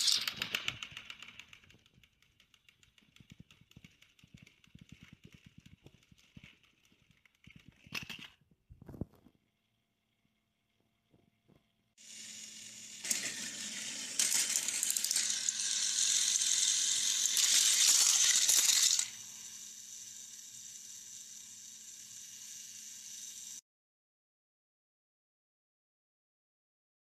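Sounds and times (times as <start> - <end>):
toy train motor whirring: 0.0 - 8.4, 12.0 - 23.6
plastic gears rattling: 0.0 - 8.5, 12.1 - 23.6.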